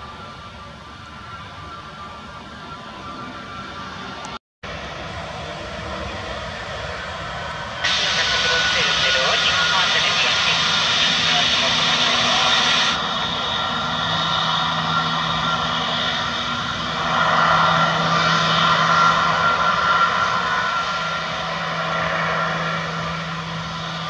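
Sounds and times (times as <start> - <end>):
jet engines whining at taxi power: 0.0 - 24.0.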